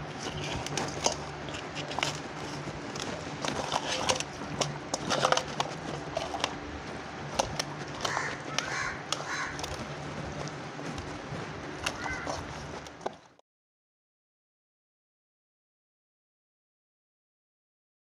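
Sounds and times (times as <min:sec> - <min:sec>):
hands squelching wet paste: 0:00.0 - 0:13.3.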